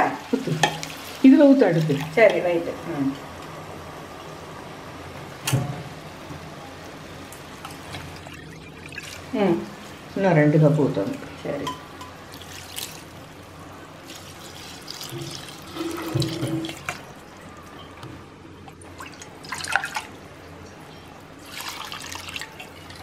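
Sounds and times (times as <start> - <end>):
water pouring and splashing: 7.3 - 9.9, 12.3 - 13.4, 14.0 - 17.7, 18.7 - 20.8, 21.4 - 23.0.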